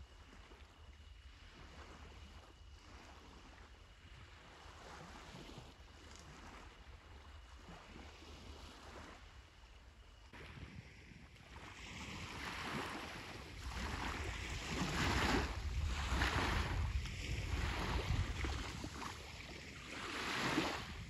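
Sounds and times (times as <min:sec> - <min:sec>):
sea waves washing on shore: 0:10.4 - 0:21.0.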